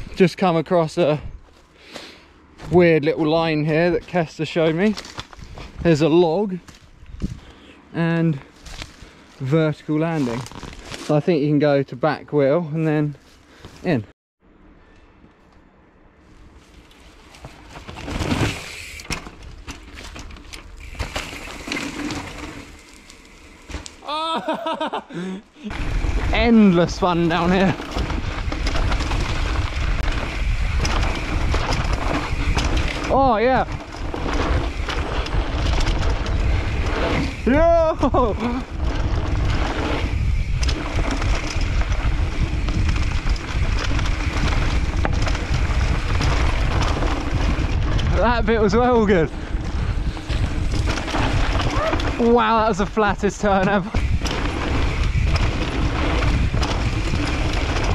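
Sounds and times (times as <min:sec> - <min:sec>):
bike tyres on loose dirt: 0:00.0 - 0:11.8, 0:12.7 - 0:14.0, 0:16.2 - 0:57.9
wind buffeting microphone: 0:06.9 - 0:07.5, 0:25.7 - 0:57.9
bike chain and frame rattling: 0:16.9 - 0:24.0, 0:25.7 - 0:57.9.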